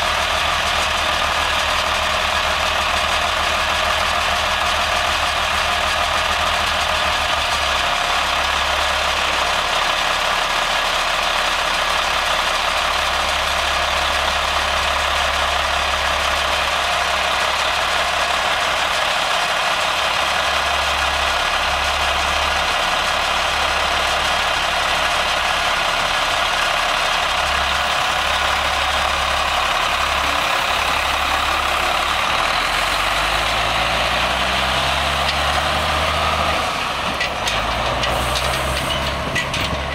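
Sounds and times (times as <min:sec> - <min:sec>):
diesel truck engine idling: 0:00.0 - 0:39.9
truck engine revving: 0:14.0 - 0:39.9.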